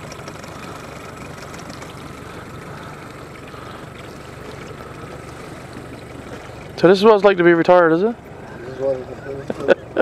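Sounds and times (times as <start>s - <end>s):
outboard motor running: 0.0s - 10.0s.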